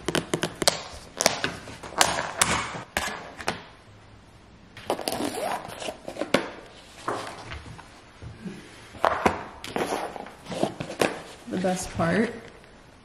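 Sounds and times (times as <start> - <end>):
takeout box scraping and rustling: 9.8 - 11.4.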